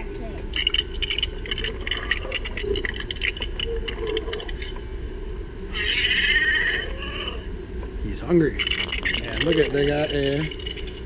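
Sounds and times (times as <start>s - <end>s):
toy dinosaur growls and screech: 5.7s - 7.5s.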